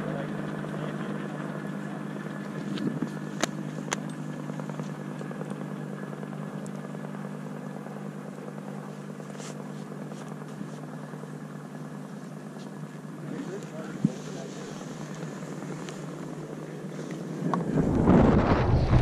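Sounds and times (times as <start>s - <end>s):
low mechanical hum: 0.0s - 19.0s.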